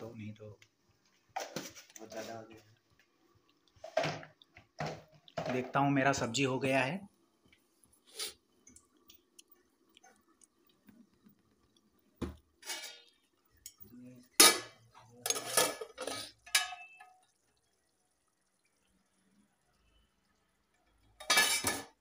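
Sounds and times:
metal pan lid clattering: 14.4 - 17.2, 21.2 - 22.0.

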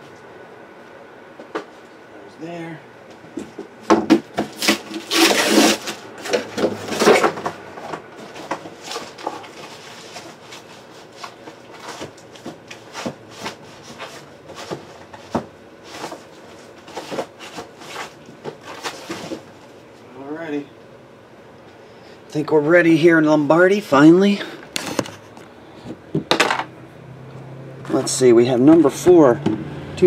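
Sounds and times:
boxes knocking and rubbing: 3.4 - 19.8
scraping and rustling: 4.4 - 20.0.

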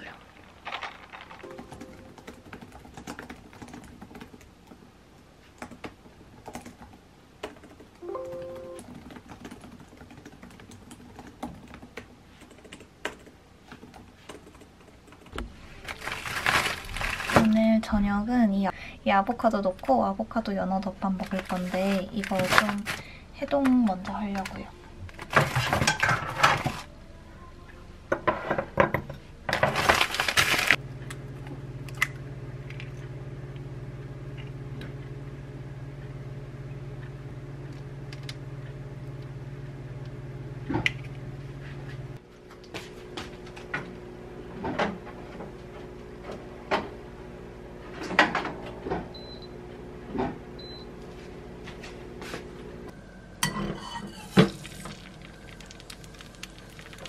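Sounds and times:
microwave oven humming: 15.4 - 57.0.

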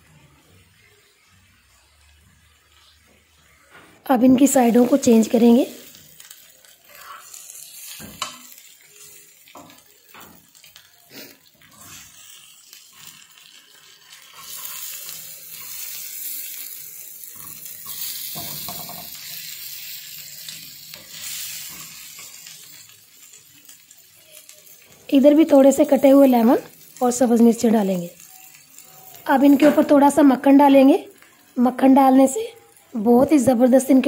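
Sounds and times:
chicken sizzling on griddle: 0.0 - 34.0
tongs clicking and scraping griddle: 5.9 - 25.1.

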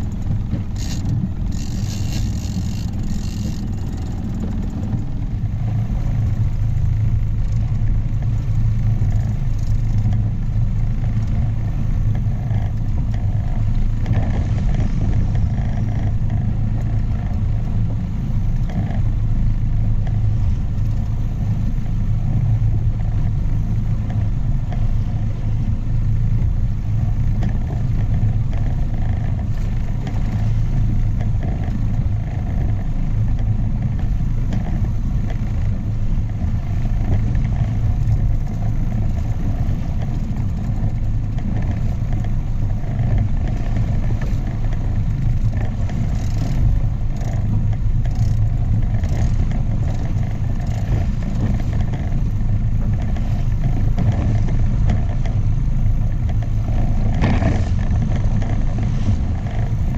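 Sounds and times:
outboard motor running: 0.0 - 59.9
water rushing past boat: 0.0 - 59.9.

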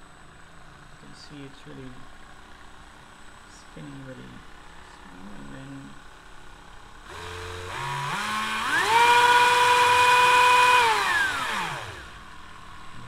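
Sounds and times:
rotary tool motor whining: 7.0 - 12.9.

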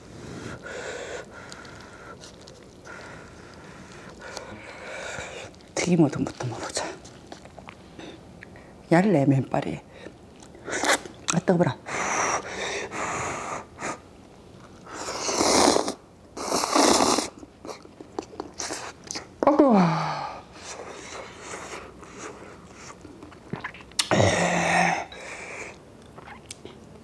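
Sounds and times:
soft chewing: 1.2 - 8.6, 10.0 - 11.4, 17.4 - 19.4, 21.2 - 24.1, 25.7 - 27.0
slurping noodles: 14.9 - 17.4.

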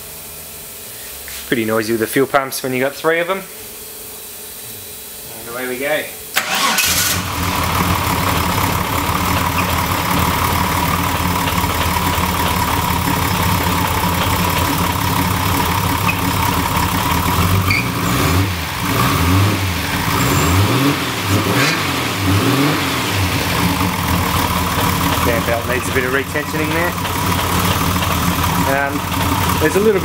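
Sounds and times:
car engine idling and revving: 6.4 - 30.0
slipping drive belt: 6.4 - 30.0
steady high whine: 7.2 - 30.0.

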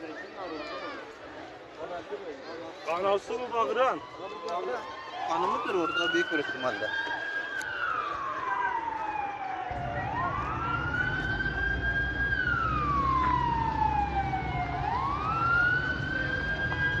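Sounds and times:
siren wailing: 3.6 - 17.0.

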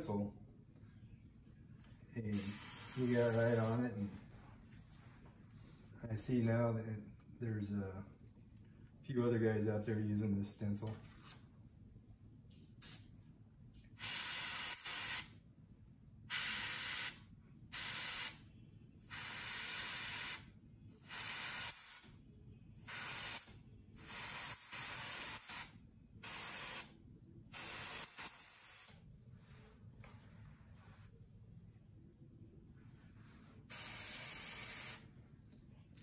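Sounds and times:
airbrush spraying hiss: 2.3 - 3.8, 22.9 - 26.9, 27.5 - 29.0, 33.7 - 35.1.

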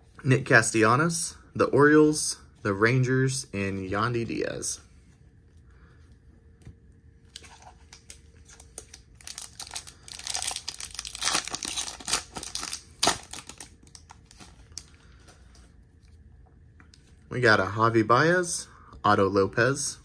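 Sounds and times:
foil wrapper crinkling and tearing: 7.4 - 14.9.

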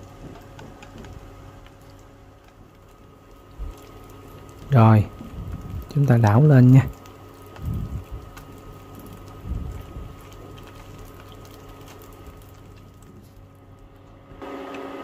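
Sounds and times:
deep-frying crackling sizzle: 0.0 - 15.0.

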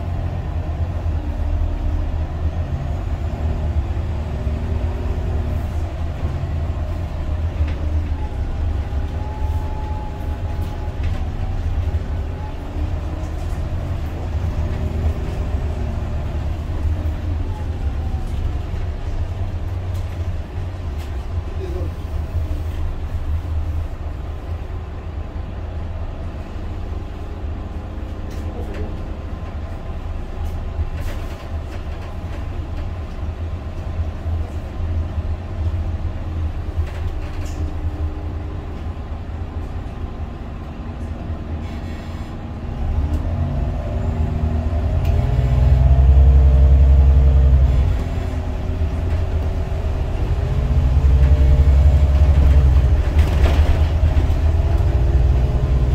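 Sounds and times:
bus diesel engine rumbling: 0.0 - 55.9.

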